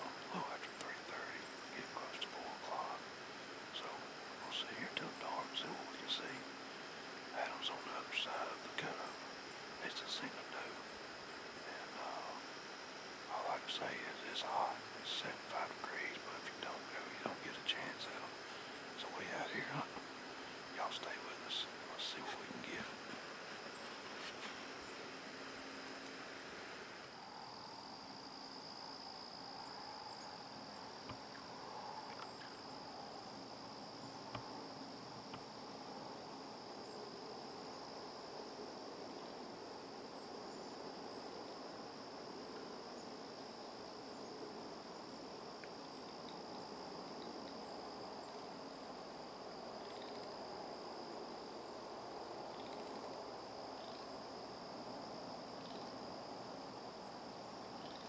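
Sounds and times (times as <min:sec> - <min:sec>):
faint woodland ambience: 0:00.0 - 0:58.0
insects trilling: 0:00.0 - 0:58.0.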